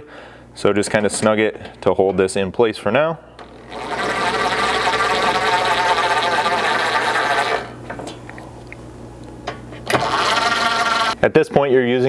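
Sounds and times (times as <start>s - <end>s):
impact driver running: 3.4s - 7.7s, 9.8s - 11.2s.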